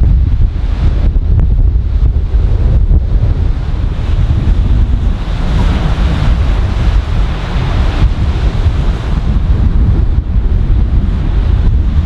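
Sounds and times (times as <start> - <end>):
wind buffeting microphone: 0.0 - 12.0
waves breaking on beach: 0.4 - 12.0.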